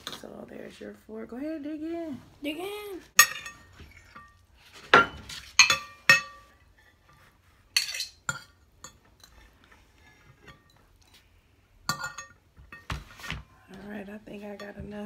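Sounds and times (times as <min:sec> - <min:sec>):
forks clinking on plates: 0:05.0 - 0:06.5, 0:11.9 - 0:12.8.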